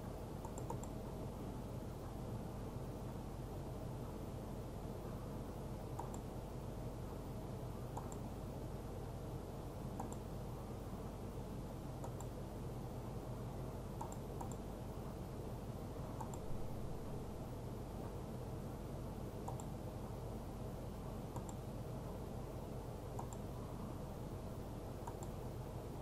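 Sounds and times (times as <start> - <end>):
steady low hum: 0.0 - 26.0
computer mouse clicking: 0.4 - 1.0, 5.9 - 6.3, 7.9 - 8.3, 10.0 - 10.3, 12.0 - 12.4, 14.0 - 14.7, 16.2 - 16.5, 19.4 - 19.8, 21.3 - 21.6, 23.1 - 23.5, 25.0 - 25.4.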